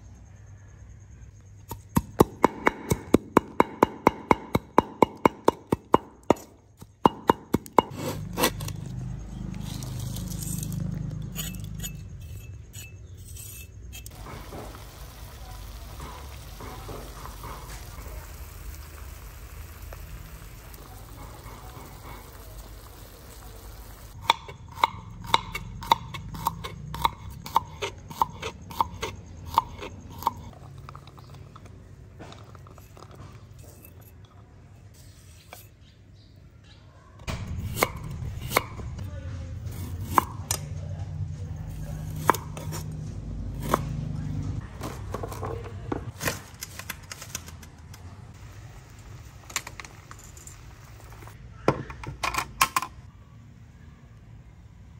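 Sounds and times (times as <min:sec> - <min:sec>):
pot simmering over grill: 0:14.0 - 0:34.6, 0:47.3 - 0:51.7
knife slicing garlic on board: 0:24.2 - 0:30.5, 0:37.6 - 0:38.8, 0:39.7 - 0:40.6, 0:41.7 - 0:43.0, 0:43.6 - 0:44.0.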